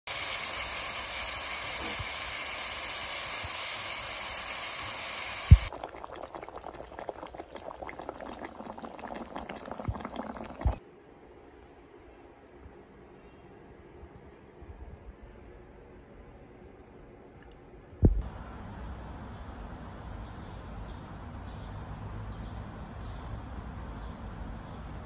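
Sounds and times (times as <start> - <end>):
ribs sizzling in a pan: 0.1 - 5.7
broth bubbling with small pops: 3.2 - 10.8.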